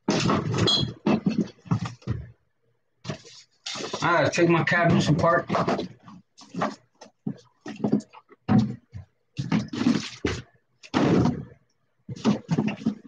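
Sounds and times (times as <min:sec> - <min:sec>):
objects clattering in cabinets: 0:00.0 - 0:02.3, 0:05.0 - 0:13.0.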